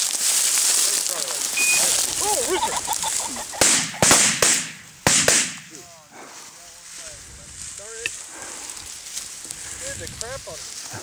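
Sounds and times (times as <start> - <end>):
shotgun shots with echo: 3.6 - 5.8.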